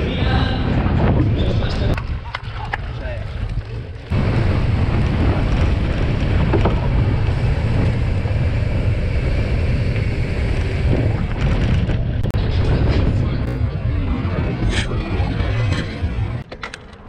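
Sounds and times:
wind buffeting microphone: 0:00.0 - 0:16.4
bike tyres humming: 0:02.9 - 0:16.4.

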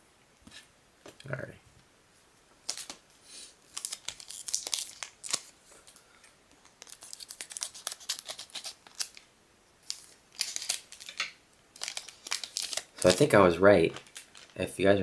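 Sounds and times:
wrapper crinkling: 0:03.7 - 0:06.0, 0:06.6 - 0:14.7.

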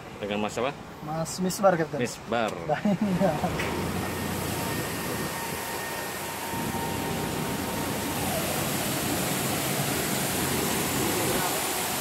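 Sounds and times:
aircraft turbine drone: 0:03.0 - 0:12.0
high-pitched whine: 0:03.1 - 0:12.0.

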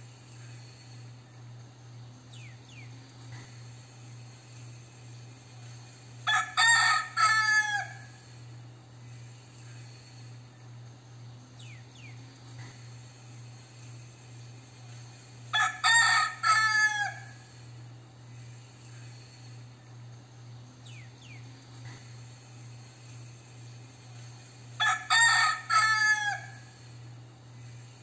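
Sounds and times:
rooster crowing: 0:06.2 - 0:08.4, 0:15.5 - 0:17.6, 0:24.8 - 0:26.9.

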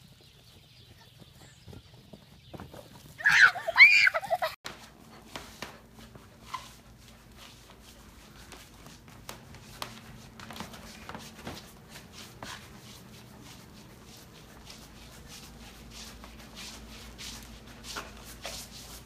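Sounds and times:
rubbing on hardwood floor: 0:04.7 - 0:19.0.

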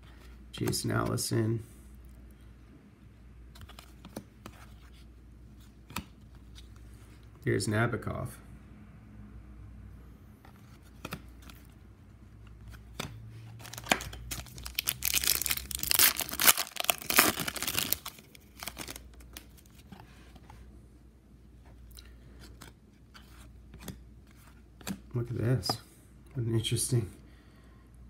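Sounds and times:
foil wrapper tearing and crinkling: 0:13.6 - 0:19.1.

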